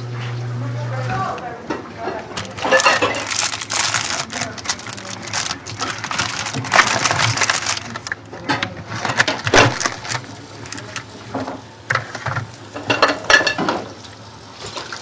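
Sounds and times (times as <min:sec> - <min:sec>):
dishware clinking and knocking: 0:02.5 - 0:03.3.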